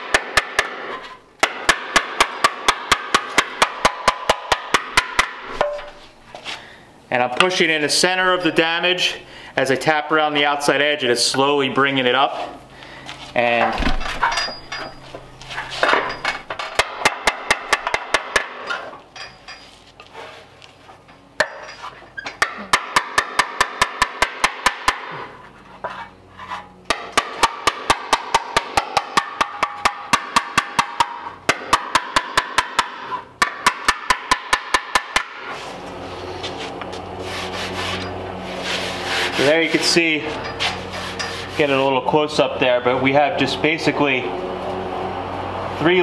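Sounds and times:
hammer tapping on sheet metal: 0:00.0 - 0:00.8, 0:01.4 - 0:05.9, 0:16.8 - 0:18.7, 0:22.4 - 0:25.2, 0:26.9 - 0:35.4.

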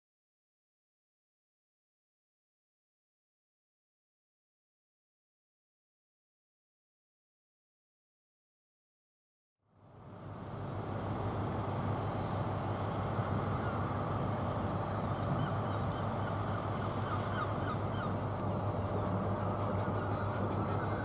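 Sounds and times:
diesel train engine idling: 0:10.2 - 0:21.0
short bird calls: 0:13.0 - 0:21.0.

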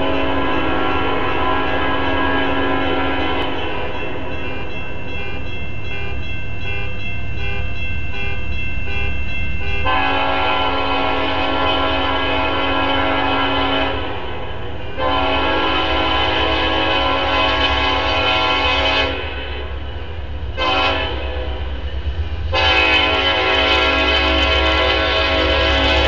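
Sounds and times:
locomotive air horn: 0:00.0 - 0:03.8, 0:09.7 - 0:19.7, 0:20.5 - 0:21.7, 0:22.5 - 0:26.0
crossing bell ringing: 0:00.0 - 0:26.0
train rumbling: 0:00.0 - 0:26.0.

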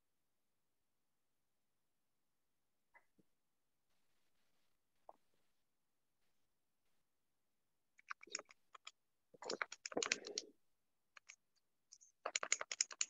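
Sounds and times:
keyboard typing clicks: 0:08.0 - 0:10.5, 0:11.2 - 0:11.4, 0:12.0 - 0:13.0.

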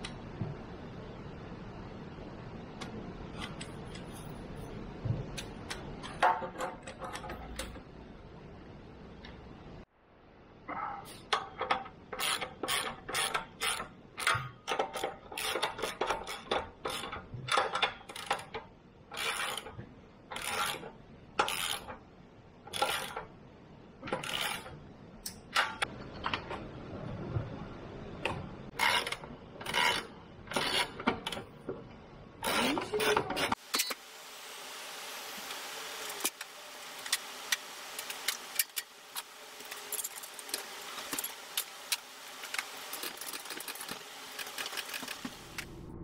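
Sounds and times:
steady hiss: 0:33.5 - 0:45.7.

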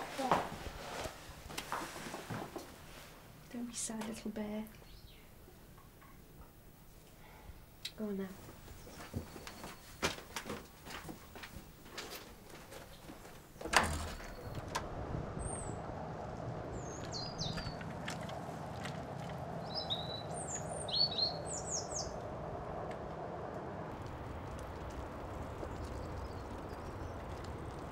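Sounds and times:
outdoor background noise: 0:00.0 - 0:27.9
small birds chirping: 0:03.9 - 0:06.0, 0:07.8 - 0:10.1, 0:16.6 - 0:22.3, 0:24.4 - 0:27.9.

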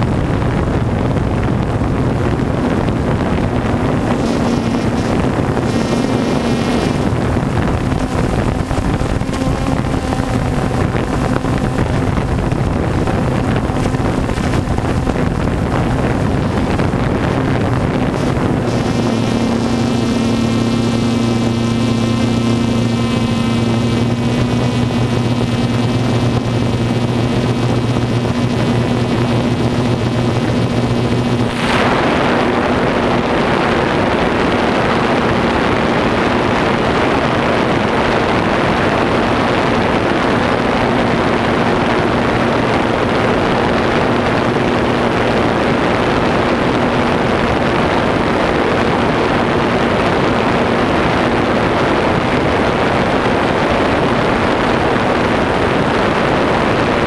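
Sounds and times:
faint hum: 0:00.0 - 0:57.0
steady rushing noise: 0:00.0 - 0:57.0
drone motors whining: 0:03.7 - 0:33.3.

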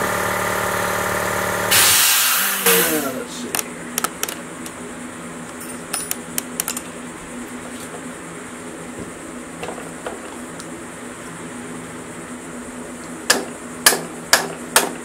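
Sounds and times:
steady low hum: 0:00.0 - 0:15.0
spanner clinking on metal: 0:05.6 - 0:06.9.

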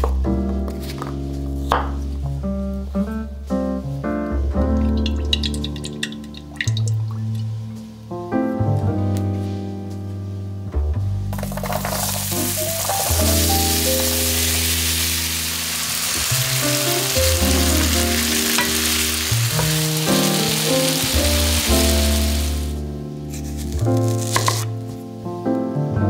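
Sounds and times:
potatoes sizzling in oil: 0:11.4 - 0:22.8, 0:23.5 - 0:24.7.

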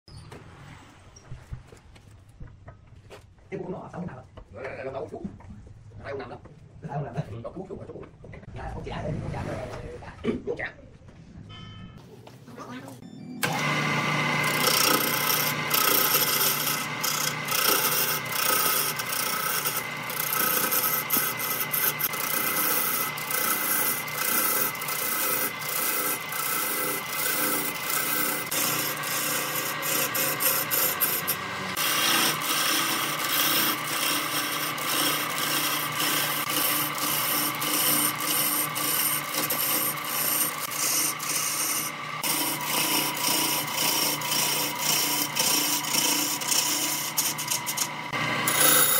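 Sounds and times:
chisel scraping wood on lathe: 0:13.4 - 0:48.9
lathe motor hum: 0:13.4 - 0:48.9.

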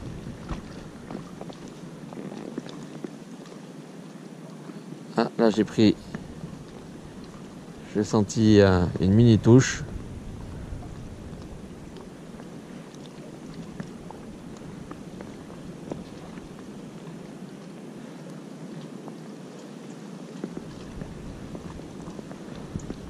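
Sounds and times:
small ticks and splashes: 0:00.0 - 0:04.8, 0:05.9 - 0:07.9, 0:10.6 - 0:23.0
small waves lapping: 0:00.0 - 0:23.0
wind: 0:00.0 - 0:23.0.

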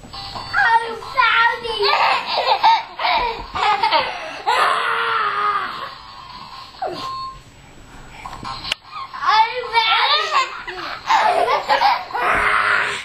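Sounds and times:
children squealing and laughing: 0:01.8 - 0:06.0, 0:08.9 - 0:13.0.

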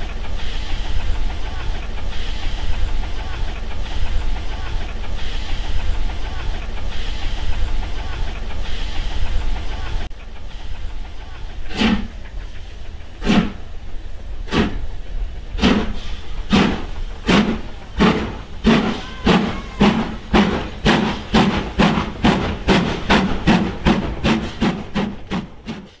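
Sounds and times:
steam hissing: 0:00.0 - 0:26.0
steam locomotive chuffing: 0:00.0 - 0:26.0.

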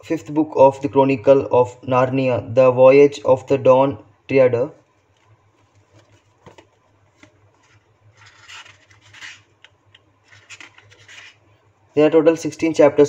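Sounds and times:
paperback book rustling: 0:05.0 - 0:11.6
paper swishes: 0:10.2 - 0:11.5.

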